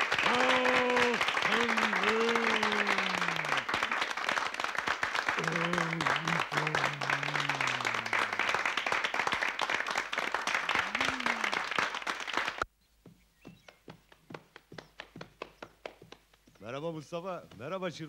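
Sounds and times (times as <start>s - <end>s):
audience applauding: 0.0s - 12.7s
man moaning: 0.2s - 3.6s, 5.4s - 8.4s, 10.8s - 11.6s
faint regular taps: 13.0s - 18.0s.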